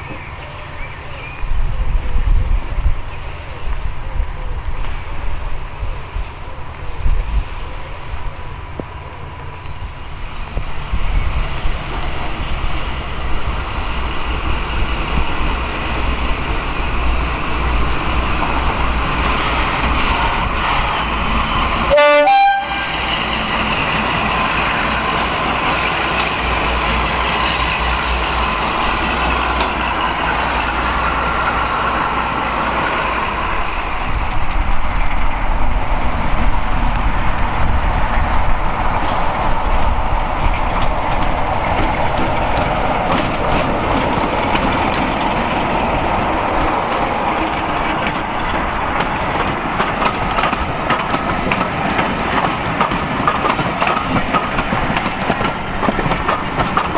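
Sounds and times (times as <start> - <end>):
diesel locomotive engine: 0.0 - 56.9
rolling stock rumble: 0.0 - 56.9
train horn blast: 21.9 - 23.1
wheels clicking over rail joints: 23.1 - 35.8, 36.4 - 56.9.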